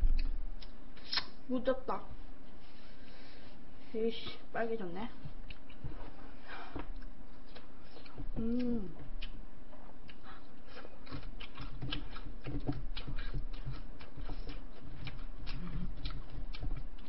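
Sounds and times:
person chewing food: 0.0 - 1.3, 5.3 - 17.0.

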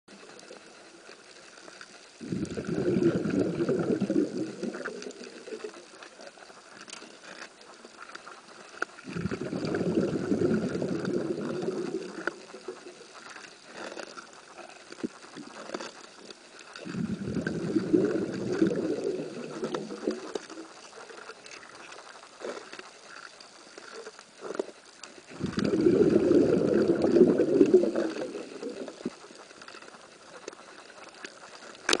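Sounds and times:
faint clicks and crackles: 0.1 - 32.0
diver's exhaled bubbles rumbling: 2.2 - 6.0, 9.0 - 13.2, 16.8 - 20.8, 25.3 - 29.4.

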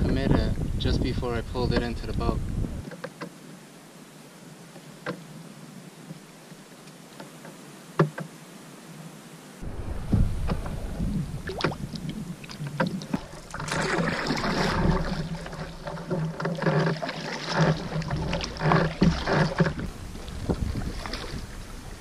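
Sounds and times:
paddle dipping through water: 9.6 - 22.0
water splashing and swishing: 9.6 - 22.0.

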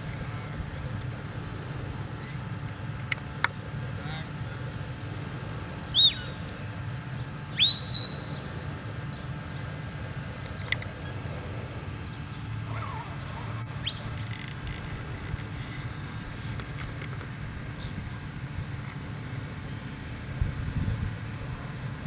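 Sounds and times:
handler's whistle commands: 7.6 - 8.6.

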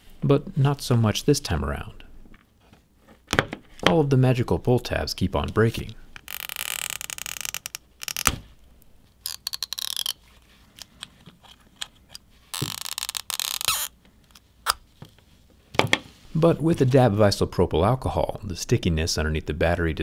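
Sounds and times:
tweezers scraping: 6.2 - 8.3, 9.2 - 10.2.

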